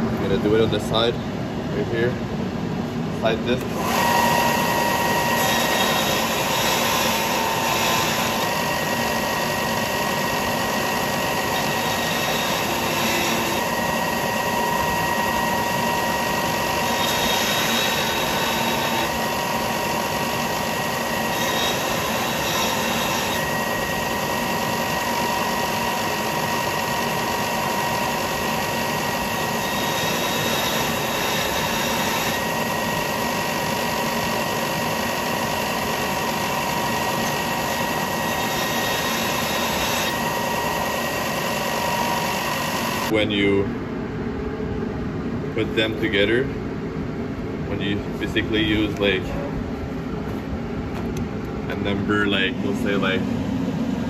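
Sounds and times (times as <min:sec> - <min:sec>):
belt sander grinding steel: 0:03.2 - 0:43.2.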